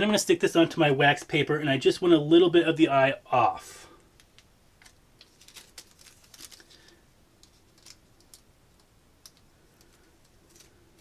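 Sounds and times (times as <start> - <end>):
faint clicks and crinkles of tape: 4.0 - 11.0.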